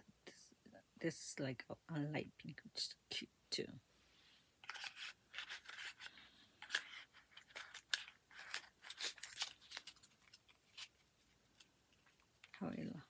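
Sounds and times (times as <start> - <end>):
packaging crinkling: 4.6 - 12.6.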